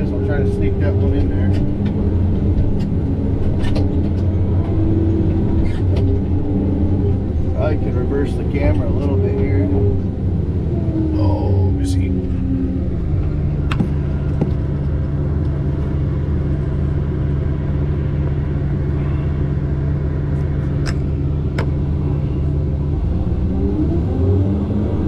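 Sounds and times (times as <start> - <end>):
diesel engine droning: 0.0 - 25.0.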